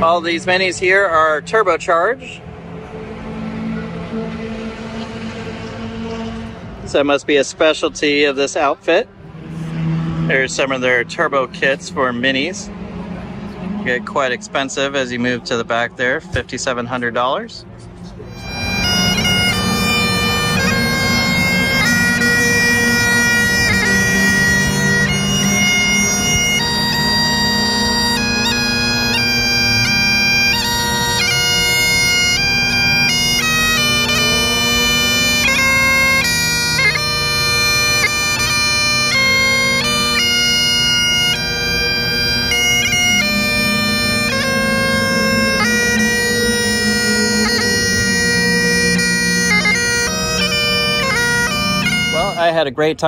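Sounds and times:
bagpipe drone and melody: 0.0 - 52.9.

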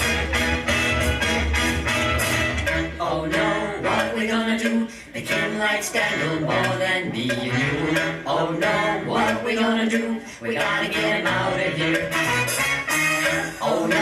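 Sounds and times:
man singing over a beat: 3.0 - 12.2, 13.6 - 14.0.

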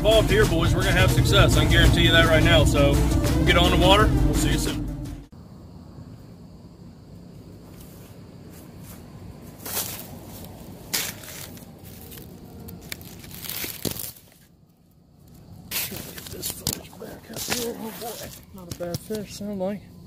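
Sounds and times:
low steady rumble: 0.0 - 6.9
rustling and scraping: 7.6 - 14.5, 15.4 - 19.2.

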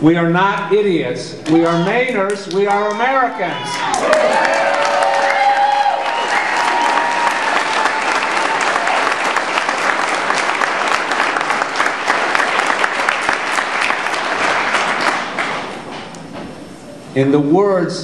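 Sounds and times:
crowd applauding: 3.6 - 15.9.

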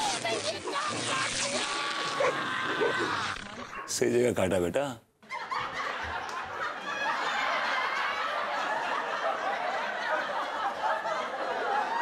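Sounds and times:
crowd laughing: 2.0 - 3.4, 5.2 - 12.0.

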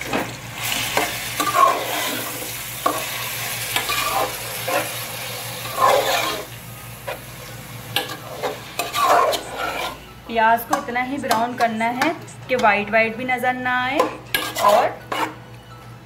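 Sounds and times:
meat sizzling in hot oil: 0.0 - 10.0
steel spoon scraping a pot: 0.9 - 3.0, 3.7 - 5.0, 5.6 - 6.5, 8.0 - 10.1, 14.0 - 15.5.

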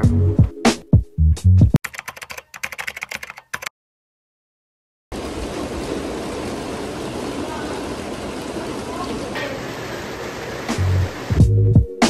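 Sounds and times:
hail falling: 5.1 - 11.4.

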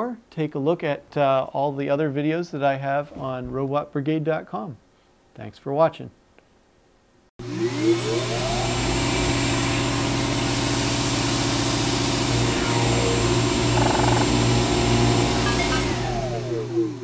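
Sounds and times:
motor whirring: 11.0 - 16.8.

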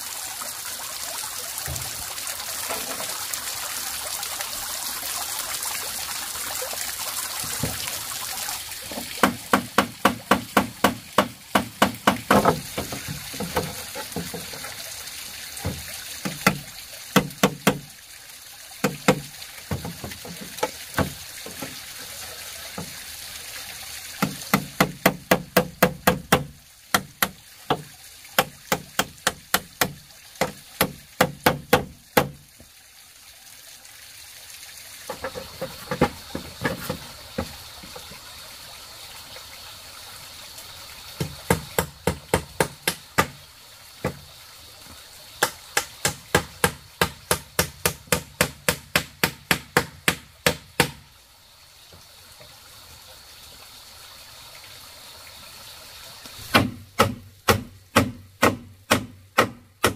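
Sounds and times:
hammer striking nails: 9.2 - 12.9, 56.5 - 59.9.

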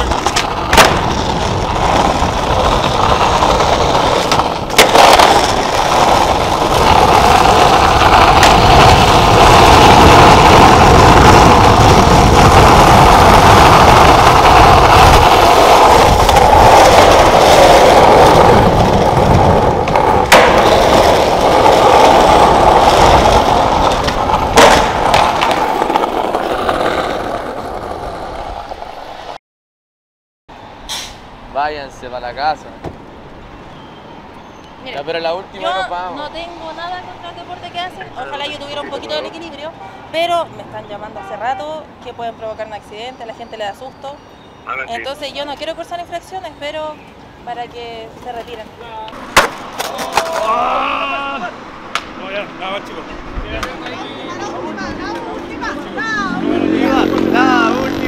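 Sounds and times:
skateboard clacks: 0.0 - 28.8, 48.2 - 50.6, 53.5 - 54.0
skateboard wheels rolling on concrete: 0.0 - 29.4, 30.7 - 58.0.

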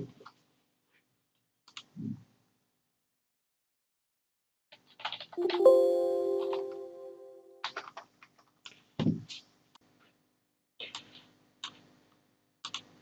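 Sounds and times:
keyboard keystrokes: 5.0 - 8.0.

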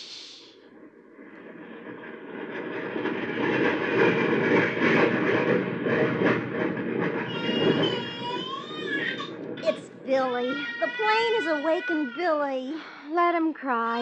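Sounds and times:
jet aircraft roaring overhead: 0.1 - 12.6
baby crying: 7.3 - 12.7.

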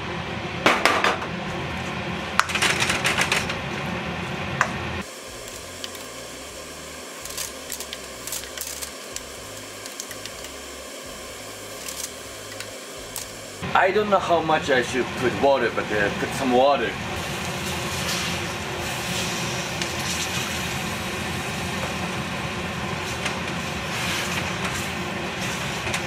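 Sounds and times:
steady background hum: 0.0 - 26.0
chicken frying in a wok: 5.0 - 13.6, 16.3 - 26.0.

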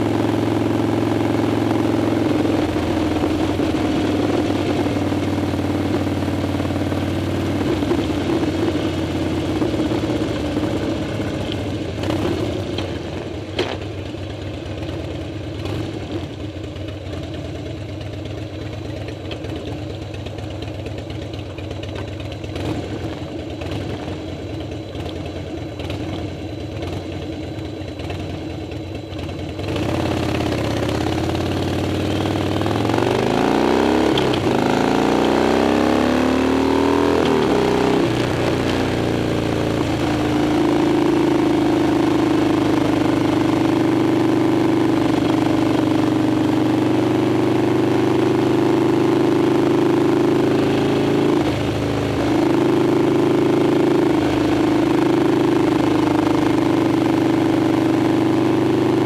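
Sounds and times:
motorcycle engine idling: 0.0 - 33.4.

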